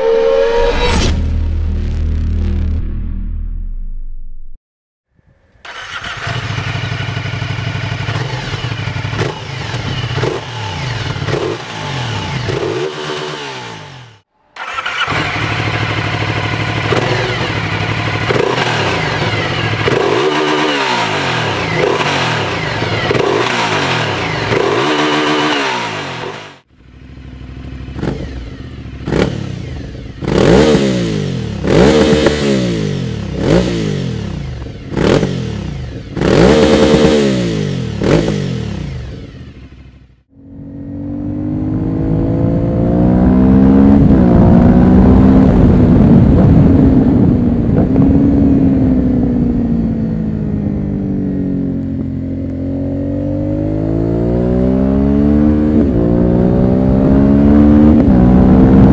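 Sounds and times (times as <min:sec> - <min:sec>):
motorcycle engine idling: 0:05.7 - 0:11.4, 0:14.6 - 0:18.3, 0:26.7 - 0:30.3.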